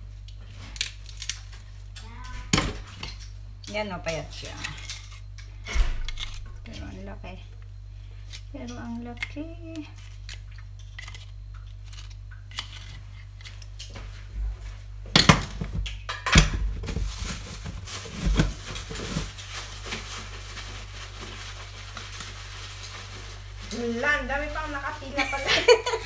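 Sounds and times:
knife scraping oyster shell: 9.9 - 13.7.

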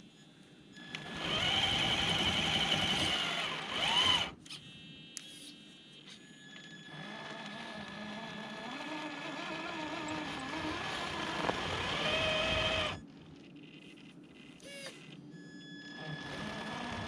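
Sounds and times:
faint steady high tone: 0.0 - 1.1, 4.1 - 7.0, 13.8 - 16.4
electric motor and gears whining: 0.8 - 4.6, 6.8 - 13.1, 15.8 - 17.0.

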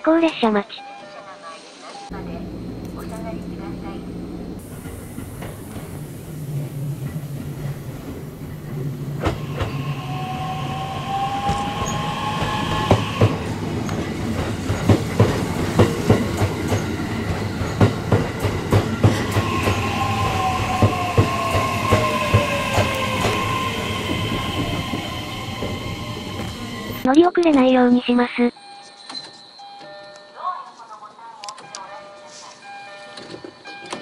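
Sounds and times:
electric train motor whine: 2.1 - 27.0
wheel clacks on rail joints: 12.5 - 19.8.

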